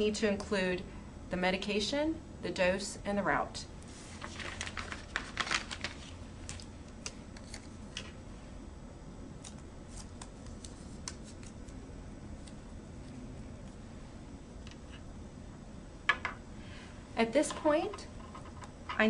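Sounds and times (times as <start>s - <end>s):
label clicks and rustles: 3.9s - 8.2s.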